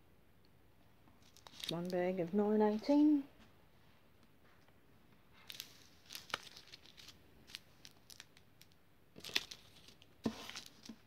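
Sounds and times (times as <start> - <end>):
plastic bags crinkling: 1.2 - 2.0, 5.4 - 11.0.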